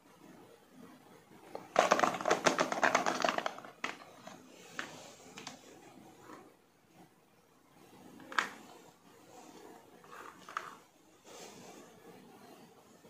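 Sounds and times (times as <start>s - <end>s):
plastic toy balls rattling: 1.5s - 5.5s, 10.1s - 10.8s.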